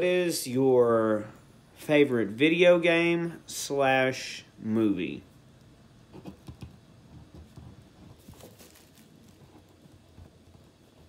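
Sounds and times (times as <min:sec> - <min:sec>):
scratchy paper rustle: 0:08.0 - 0:10.9.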